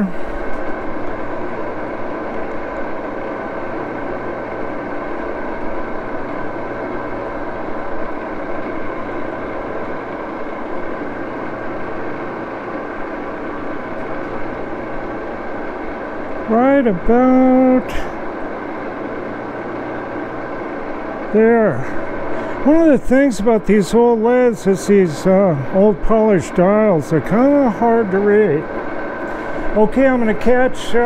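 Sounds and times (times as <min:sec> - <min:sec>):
lathe running with machine hum: 0:00.0 - 0:31.0.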